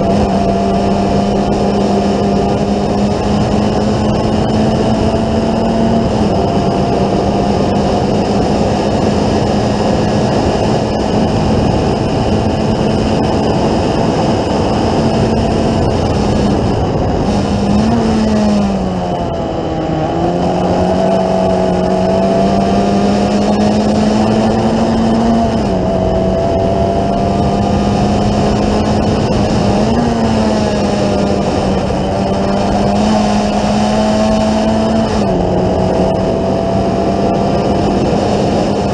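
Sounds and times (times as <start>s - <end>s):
race car engine at high revs: 0.0s - 38.9s.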